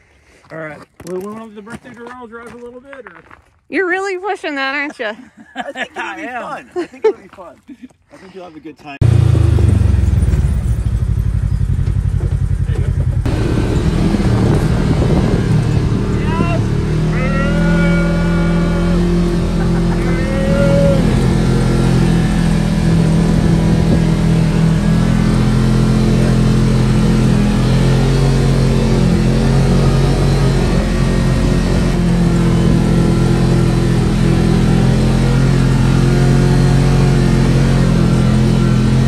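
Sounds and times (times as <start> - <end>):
utility vehicle engine running: 9.0 - 39.0.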